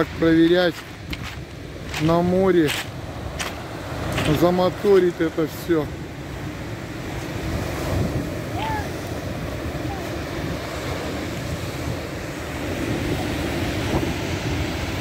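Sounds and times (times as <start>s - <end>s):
surf washing on pebble beach: 0.0s - 15.0s
wind buffeting microphone: 0.0s - 15.0s.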